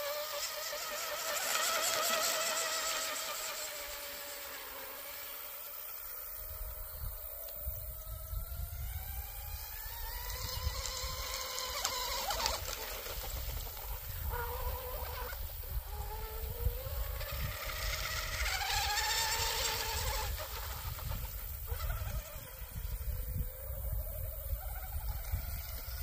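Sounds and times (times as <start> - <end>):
rc boat motor whine: 0.0 - 26.0
wind rumble on microphone: 6.4 - 26.0.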